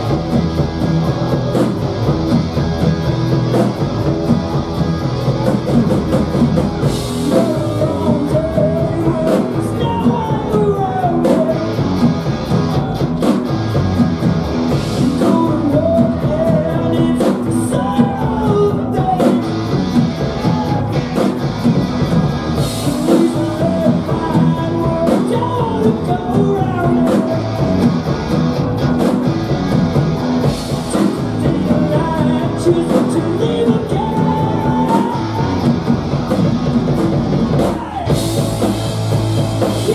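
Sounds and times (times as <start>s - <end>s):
distorted electric guitar: 0.0s - 39.9s
drum kit: 0.0s - 39.9s
electric bass: 0.0s - 39.9s
person singing lead vocal: 6.9s - 13.4s, 14.7s - 21.1s, 22.6s - 28.0s, 30.8s - 35.9s, 37.5s - 38.7s, 39.6s - 39.9s.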